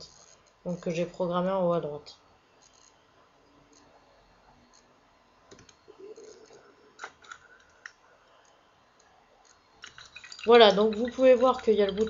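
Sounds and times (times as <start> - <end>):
computer mouse clicks: 3.6 - 4.0, 5.5 - 12.0.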